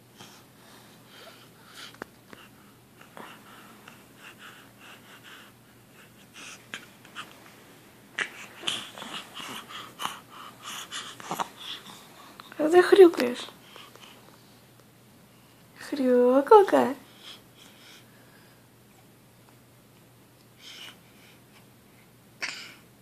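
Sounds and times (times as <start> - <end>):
baby grunting and breathing: 8.1 - 12.1.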